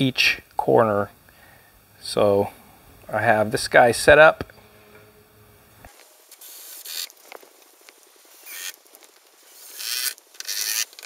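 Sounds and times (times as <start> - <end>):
tape measure blade zipping: 6.3 - 7.2, 8.4 - 8.8, 9.5 - 11.0.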